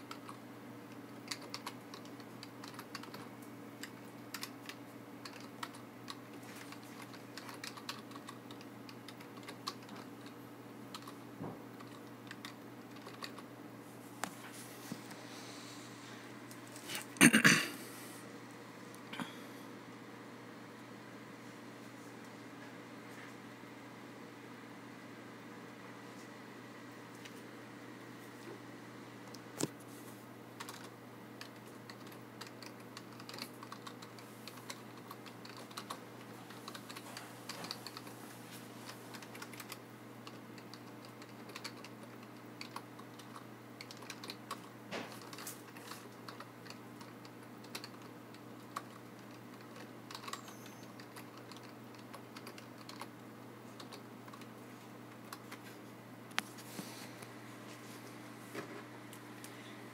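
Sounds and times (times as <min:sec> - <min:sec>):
typing on computer keyboard: 0:00.0 - 0:11.2, 0:11.8 - 0:13.4, 0:30.6 - 0:36.0, 0:36.6 - 0:38.1, 0:39.1 - 0:53.1, 0:53.8 - 0:54.5.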